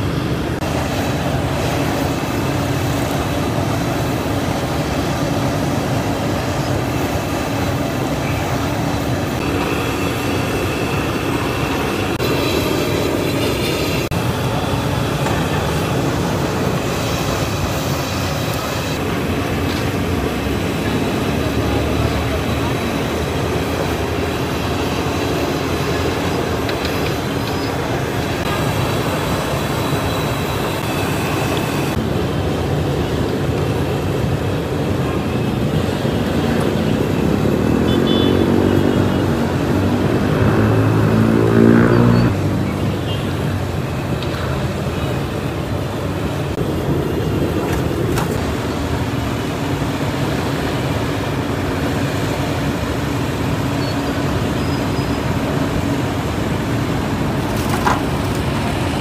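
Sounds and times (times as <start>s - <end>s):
road traffic noise: 0.0s - 59.0s
vehicle engine accelerating past: 39.8s - 42.7s.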